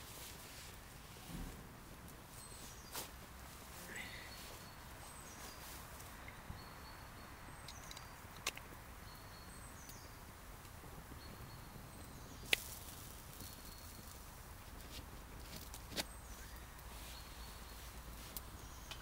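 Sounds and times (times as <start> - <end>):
sharp snaps: 7.6 - 8.8, 12.4 - 12.8
faint high bird calls: 16.1 - 19.0.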